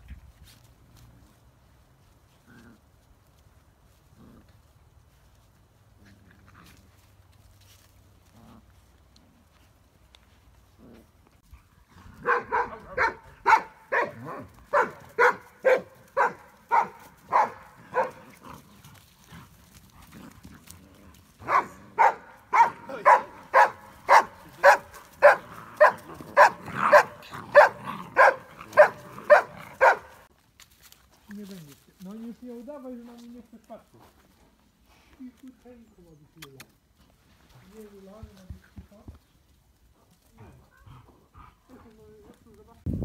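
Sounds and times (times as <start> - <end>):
puppy barking: 12.2 - 18.2, 21.4 - 30.3.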